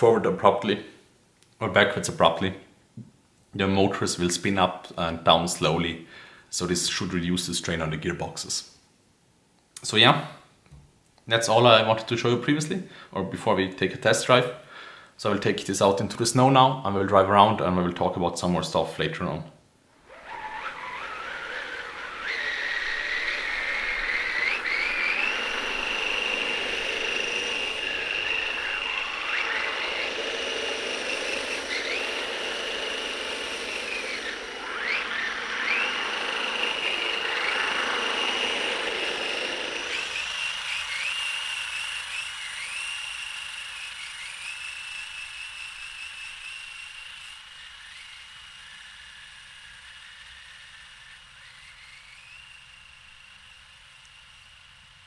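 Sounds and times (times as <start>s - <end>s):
electric motors whining: 19.9s - 55.0s
low rushing noise: 20.1s - 40.2s.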